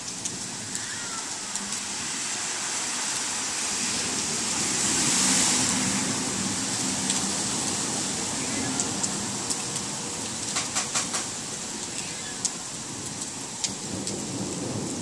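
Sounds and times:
rain on wet street: 0:00.0 - 0:15.0
water drips: 0:06.5 - 0:14.2.

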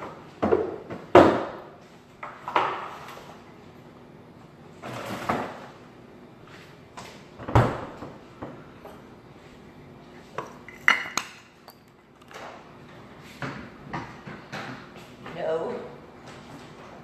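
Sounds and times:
knocks and clunks of objects: 0:00.0 - 0:01.6, 0:13.4 - 0:15.4.

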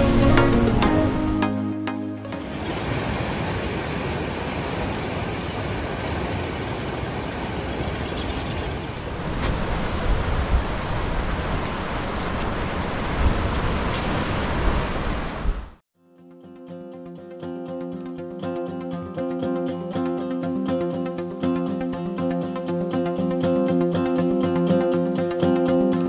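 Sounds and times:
ocean surf on rocks: 0:00.0 - 0:01.5, 0:02.3 - 0:15.8
acoustic guitar music: 0:00.0 - 0:02.5, 0:16.0 - 0:26.0
wind on microphone: 0:08.8 - 0:15.7.

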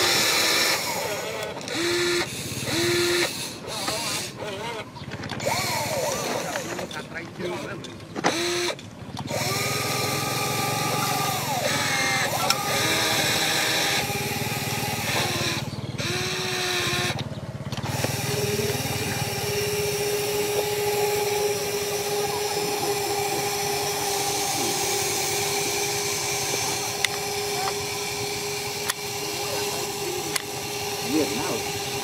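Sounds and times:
small electric motors whining: 0:00.0 - 0:32.0.

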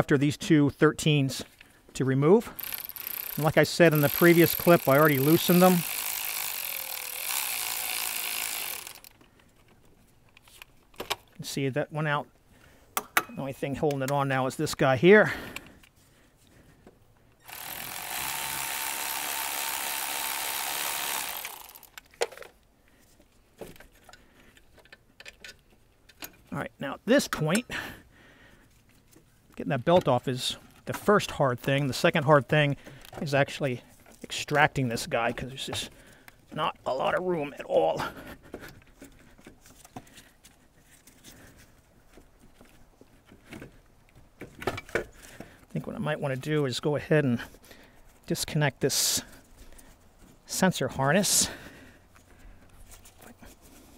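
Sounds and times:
electric ratchet running: 0:02.6 - 0:09.2, 0:17.4 - 0:22.0.

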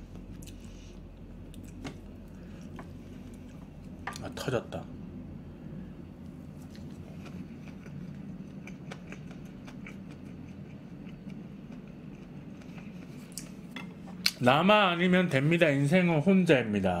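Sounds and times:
steady low hum: 0:00.0 - 0:17.0
chewing food: 0:00.1 - 0:04.0, 0:06.5 - 0:14.4.

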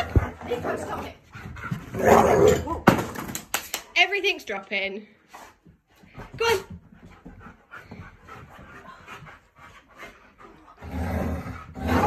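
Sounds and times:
dogs panting and sniffing: 0:00.0 - 0:02.1, 0:05.0 - 0:12.0
dog growling: 0:10.7 - 0:12.0.

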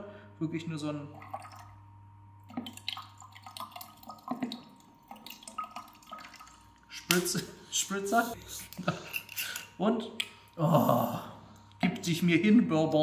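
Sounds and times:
liquid trickling through funnel: 0:01.1 - 0:07.1.

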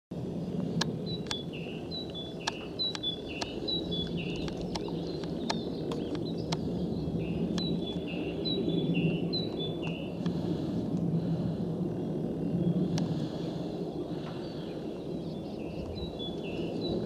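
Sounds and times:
jet aircraft rumble overhead: 0:00.1 - 0:17.0
sharp clicks: 0:00.8 - 0:01.4, 0:02.0 - 0:06.7.

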